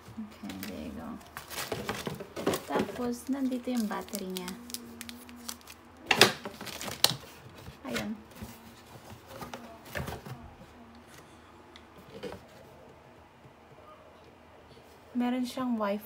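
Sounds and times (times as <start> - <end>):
cardboard box rustling: 0.0 - 10.6
plastic wrapping rustling: 0.0 - 11.2.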